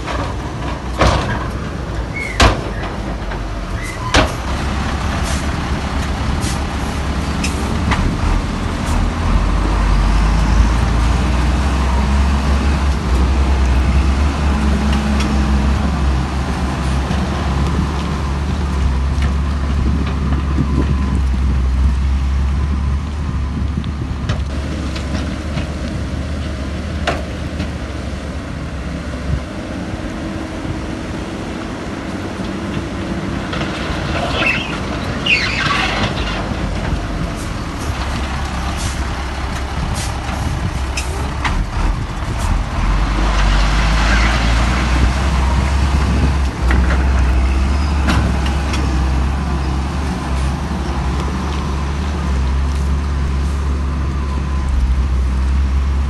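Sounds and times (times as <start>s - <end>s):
knocks and clanks: 0.0s - 4.8s
heavy machinery diesel engines running: 0.0s - 56.0s.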